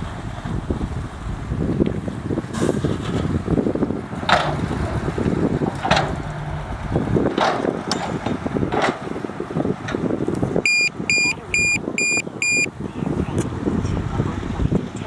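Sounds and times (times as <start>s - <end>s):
diesel engine running: 0.0s - 15.0s
grinding track and dirt noise: 0.0s - 15.0s
reversing alarm beeping: 10.6s - 12.7s.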